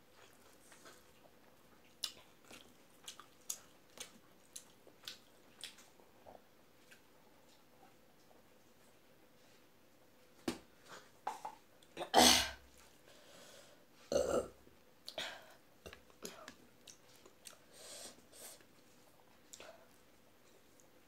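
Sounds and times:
wet chewing sounds: 0.1 - 8.4, 15.8 - 17.7
person burping: 14.1 - 14.6.

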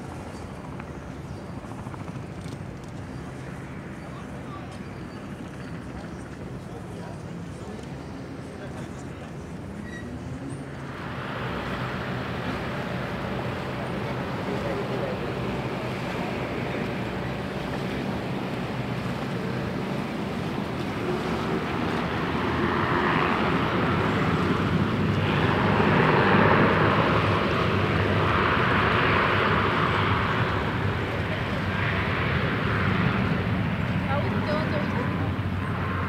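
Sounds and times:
rushing wind: 0.0 - 36.0
turboprop engines humming: 0.0 - 36.0
rushing water: 10.9 - 36.0.

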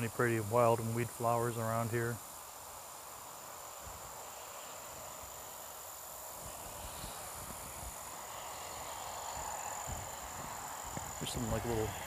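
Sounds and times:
insects trilling: 0.0 - 12.0.

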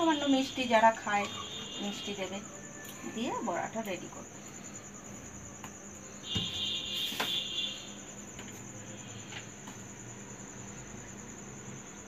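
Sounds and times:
high-pitched insect trill: 0.0 - 12.0.

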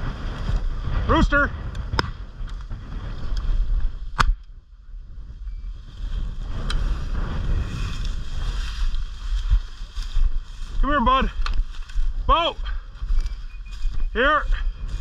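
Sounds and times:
wind buffeting microphone: 0.0 - 15.0
sharp crack: 1.7 - 3.5, 4.1 - 4.6
dry grass swishing and crunching: 5.8 - 11.0, 11.6 - 12.2.

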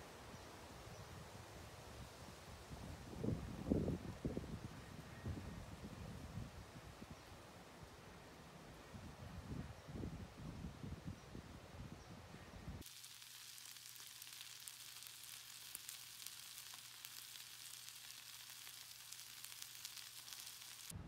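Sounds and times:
egg sizzling in a pan: 12.8 - 21.0.

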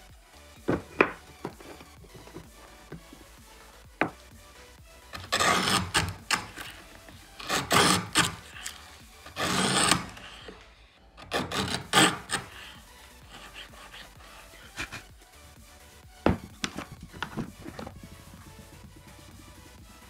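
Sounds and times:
hand tool rasping on wood: 0.7 - 3.3, 5.1 - 10.6, 11.2 - 15.1, 16.3 - 18.8.

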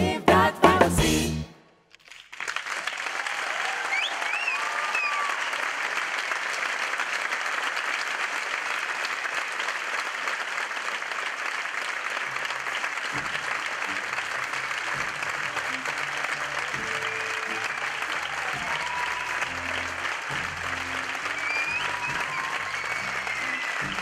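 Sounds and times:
audience applauding: 2.0 - 24.0
whistles over clapping: 2.3 - 6.0, 14.8 - 24.0.

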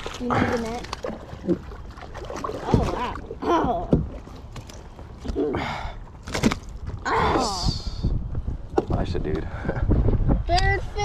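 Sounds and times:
fish splashing: 0.0 - 5.4.

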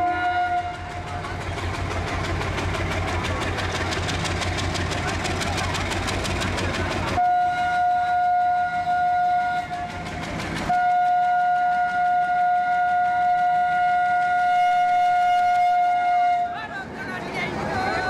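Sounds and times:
locomotive horn blasts: 0.0 - 1.1, 7.2 - 10.0, 10.7 - 16.6
diesel engine running: 0.3 - 11.1.

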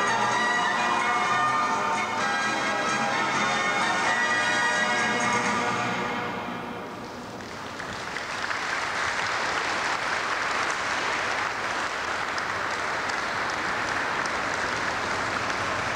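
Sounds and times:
audience applauding: 7.0 - 15.9.

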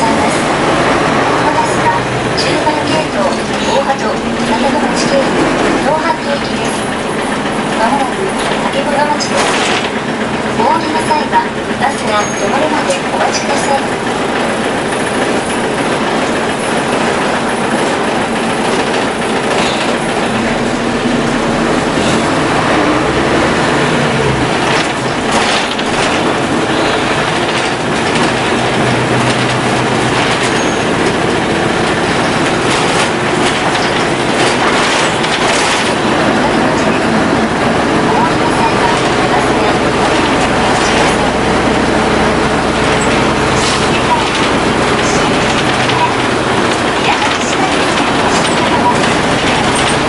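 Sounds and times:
bus diesel engine: 0.0 - 50.0
road noise: 0.0 - 50.0
body rattles and knocks: 24.3 - 38.1, 42.7 - 50.0.

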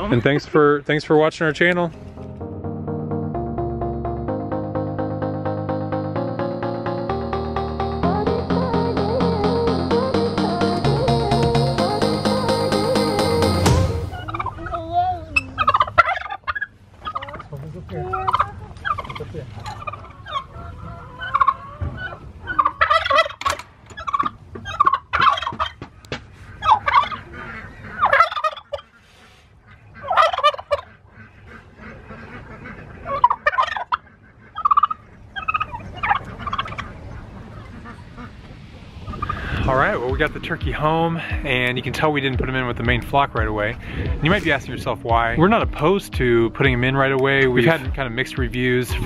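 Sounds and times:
turkey gobbling: 10.1 - 39.6.

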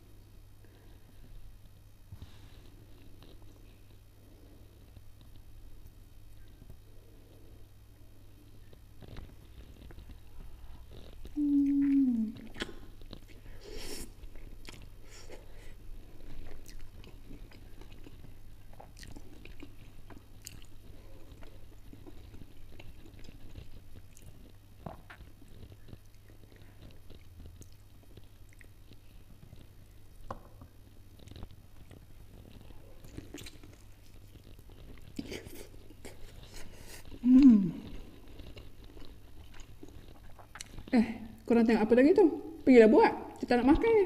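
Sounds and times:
low steady hum: 0.0 - 44.0
person chewing chicken: 8.6 - 30.0, 31.0 - 40.9
mouth smacks and clicks: 11.2 - 13.4, 38.6 - 40.9.

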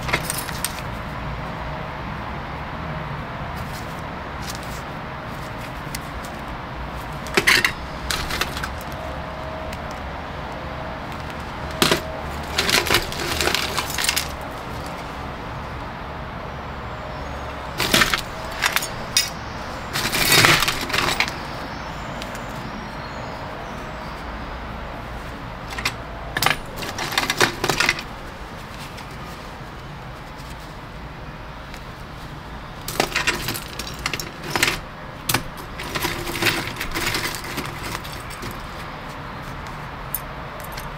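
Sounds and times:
metal pieces clinking and rattling: 0.0 - 0.9, 7.3 - 9.0, 11.8 - 15.0, 17.7 - 21.6, 25.7 - 28.1, 32.9 - 38.7, 40.1 - 40.9.

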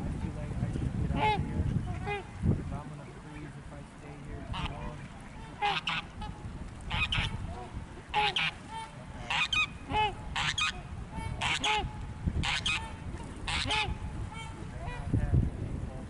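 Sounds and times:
geese honking: 1.1 - 2.4, 4.4 - 15.1.

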